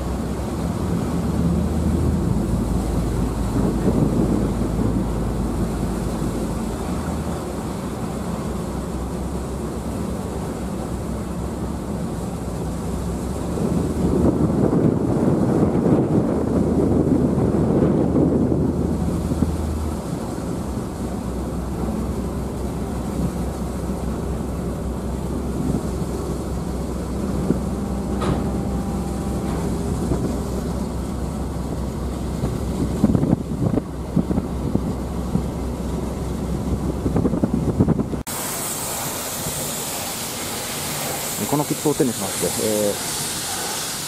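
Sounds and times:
ferry engine humming: 0.0s - 44.0s
water noise: 0.0s - 44.0s
steady hiss: 38.2s - 44.0s.

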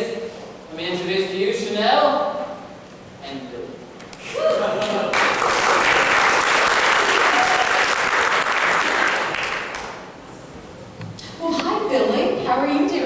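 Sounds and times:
audience applauding: 4.5s - 10.1s.

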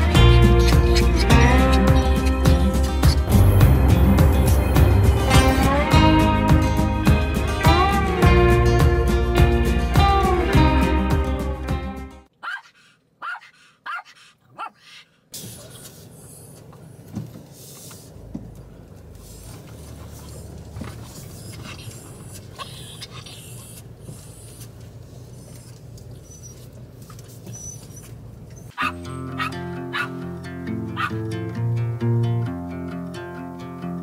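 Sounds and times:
small dogs whining: 0.1s - 3.4s, 12.4s - 15.0s, 21.2s - 26.8s, 27.4s - 30.1s.

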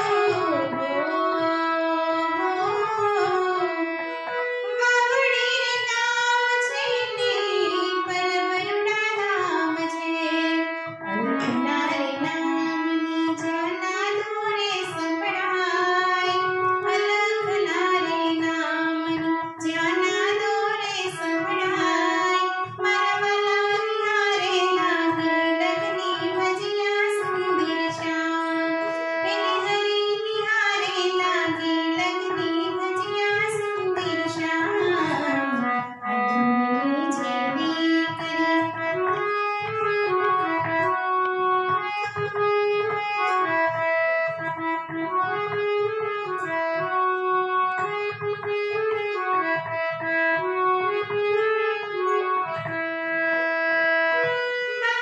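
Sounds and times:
woman singing: 0.0s - 39.2s
harmonium: 0.0s - 55.0s.

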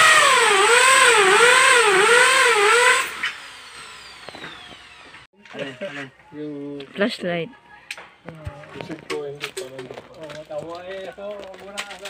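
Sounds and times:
power drill whining: 0.0s - 5.3s.

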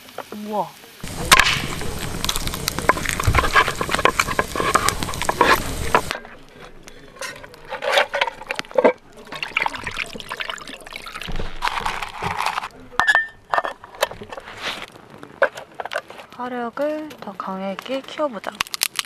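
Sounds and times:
knocks and scrapes in metal pot: 1.0s - 10.3s, 10.9s - 16.1s
plastic bag crinkling: 1.0s - 12.9s, 14.2s - 19.0s.

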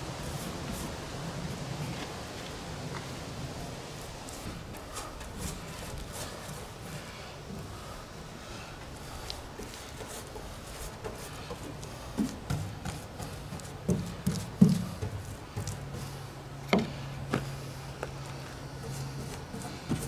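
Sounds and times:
paintbrush dabbing and scraping: 9.0s - 16.2s.

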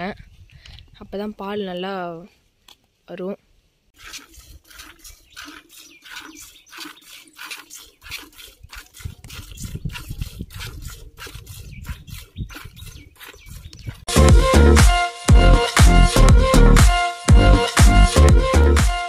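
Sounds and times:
milk squirting into steel pot: 4.0s - 13.7s.

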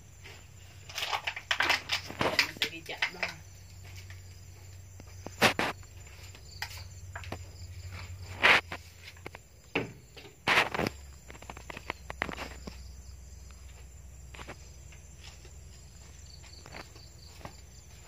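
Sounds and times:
short scraping noises: 7.9s - 9.2s.

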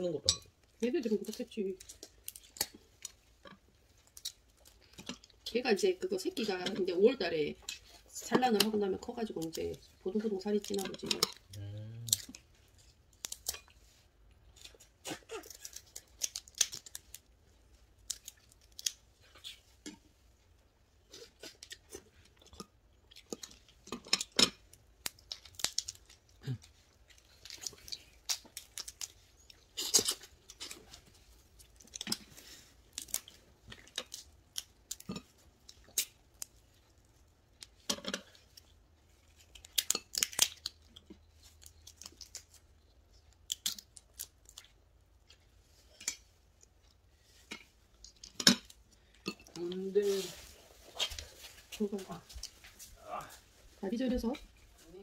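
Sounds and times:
crab shells cracking: 1.3s - 5.4s, 10.6s - 13.8s, 14.4s - 20.0s, 21.1s - 46.8s.

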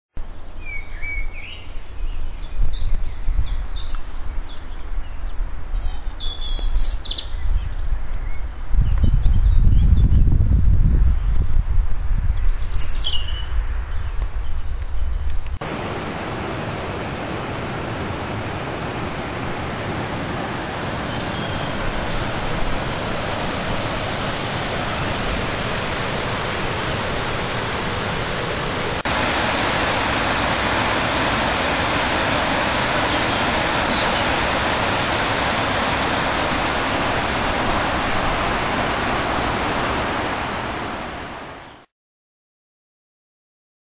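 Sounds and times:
wind rumble on microphone: 1.8s - 5.9s, 6.6s - 15.9s
descending bird chirp: 5.3s - 7.4s
river water rushing over weir: 15.6s - 41.9s.

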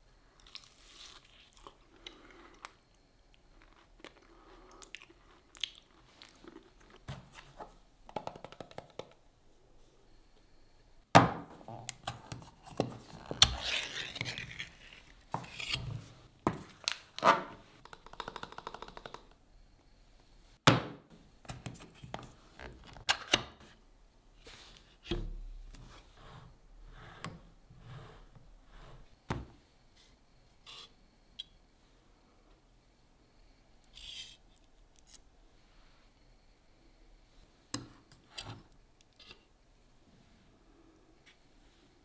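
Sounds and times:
metal lid scraping and tearing: 13.0s - 16.1s.

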